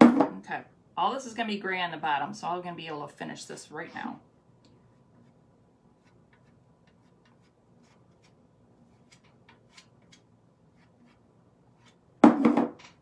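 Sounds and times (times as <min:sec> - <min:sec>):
palette knife scraping: 0:05.1 - 0:12.0.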